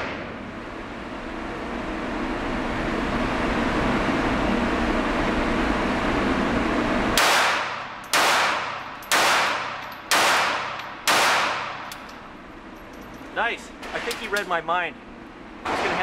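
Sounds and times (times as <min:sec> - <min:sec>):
pistol shots with echo: 0:07.2 - 0:11.8.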